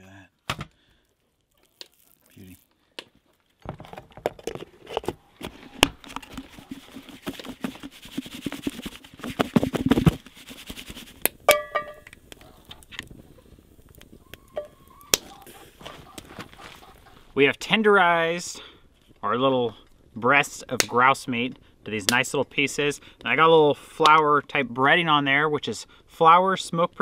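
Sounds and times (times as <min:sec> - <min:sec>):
meat shaken in flour tub: 0:06.2 - 0:11.2.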